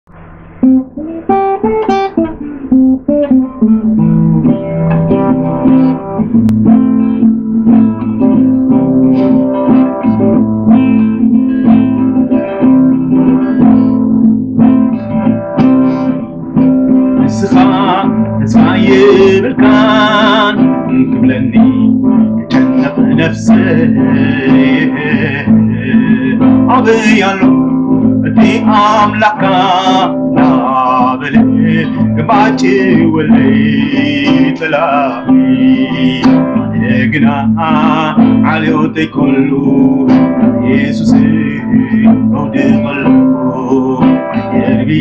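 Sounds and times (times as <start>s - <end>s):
acoustic guitar strumming: 0.0s - 45.0s
man singing: 14.9s - 45.0s.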